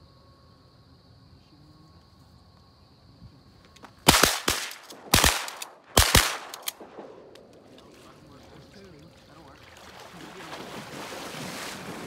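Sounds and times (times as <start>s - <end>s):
insects buzzing: 0.0s - 12.0s
shotguns firing: 4.0s - 8.2s.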